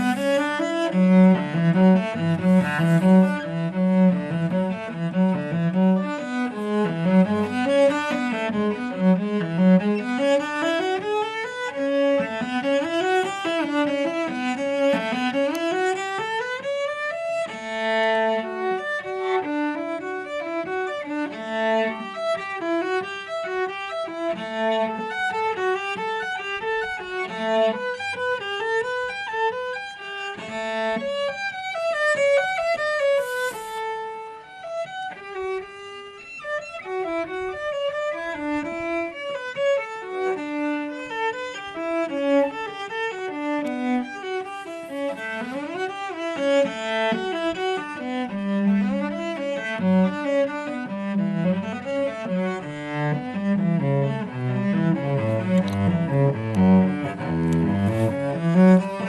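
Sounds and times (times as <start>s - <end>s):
bowed cello melody: 0.0s - 59.0s.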